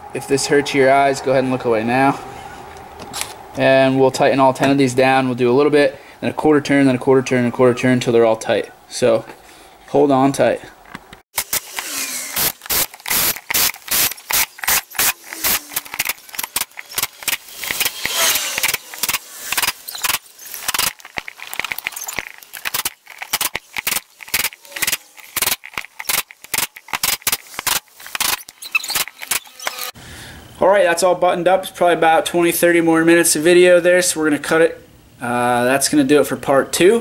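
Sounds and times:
sharp clicks and rattles: 0:10.9 - 0:30.0
cordless power driver bursts: 0:11.4 - 0:21.0.

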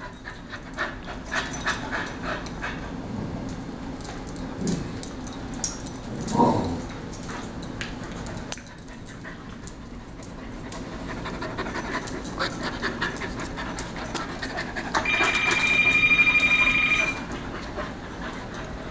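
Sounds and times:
dogs panting: 0:00.0 - 0:03.0, 0:07.2 - 0:18.9
high steady tone: 0:15.0 - 0:17.2.

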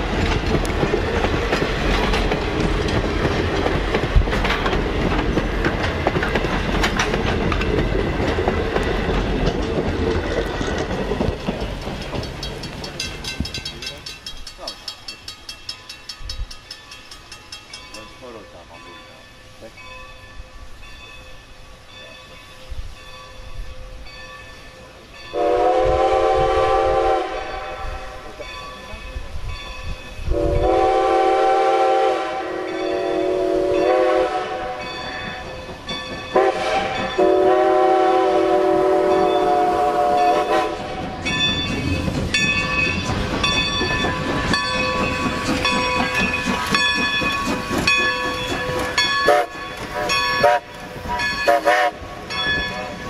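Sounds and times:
locomotive clanking and knocking: 0:00.0 - 0:18.5, 0:34.9 - 0:37.2, 0:41.0 - 0:50.4
rushing steam hiss: 0:00.0 - 0:53.0
steam locomotive chime whistle: 0:12.9 - 0:41.7, 0:42.3 - 0:53.0.

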